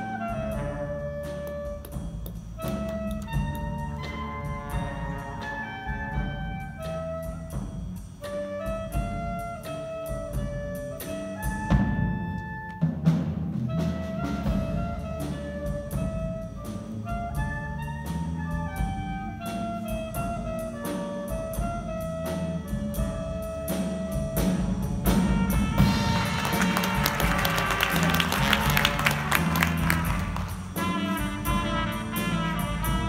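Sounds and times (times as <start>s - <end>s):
small jazz band playing: 0.0s - 33.0s.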